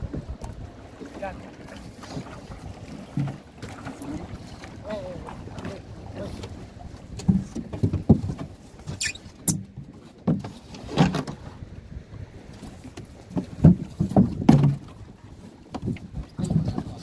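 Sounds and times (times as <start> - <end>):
styrofoam boxes knocking against boat: 13.4 - 14.9.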